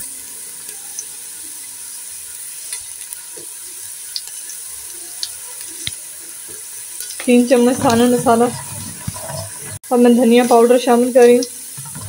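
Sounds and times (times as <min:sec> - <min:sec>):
onions sizzling in hot oil: 0:00.0 - 0:12.0
spatula scraping and tapping pot: 0:05.8 - 0:09.8.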